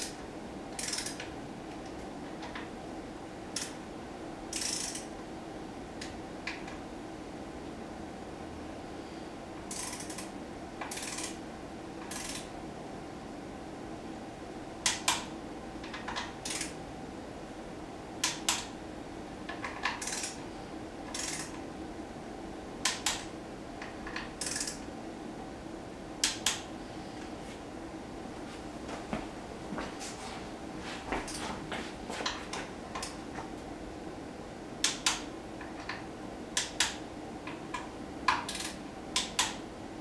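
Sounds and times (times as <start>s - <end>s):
ratchet clicking: 0.8s - 1.2s, 4.5s - 5.1s, 9.7s - 10.3s, 10.9s - 11.4s, 20.0s - 20.4s, 21.1s - 21.6s, 24.4s - 24.8s.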